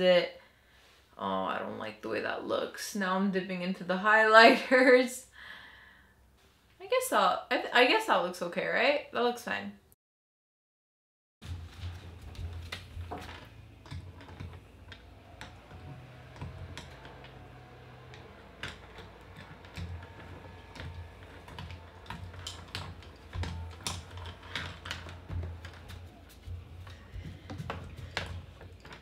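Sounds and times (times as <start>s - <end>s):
claws clicking on wooden floor: 11.4s - 29.0s
plastic pencils tapping on floor: 11.4s - 29.0s.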